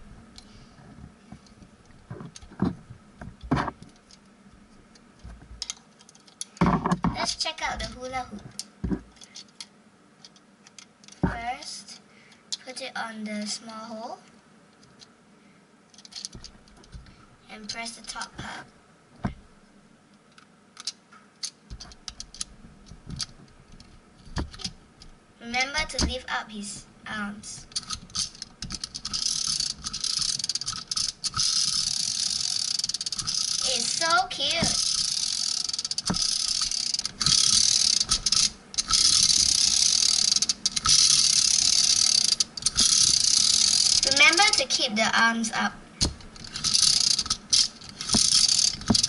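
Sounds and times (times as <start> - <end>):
plastic toy whirring rattle: 27.6 - 44.8, 46.0 - 49.0
plastic toy clicks and taps: 46.0 - 49.0.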